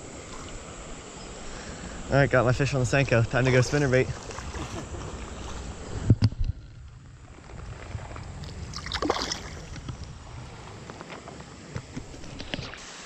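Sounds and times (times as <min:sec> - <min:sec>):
creek water flowing and sloshing: 0:00.0 - 0:13.0.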